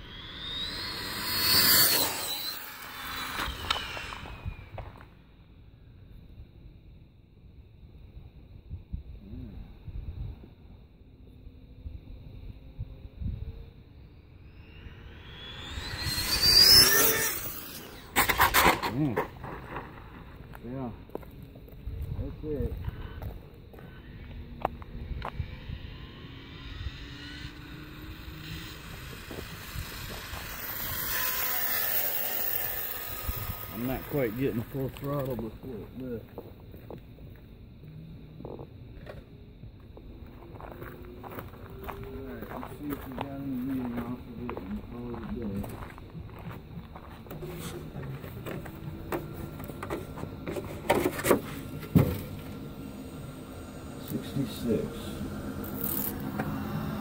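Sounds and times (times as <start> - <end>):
rc truck motor and tyres: 0.0 - 5.4, 12.8 - 37.0, 39.9 - 57.0.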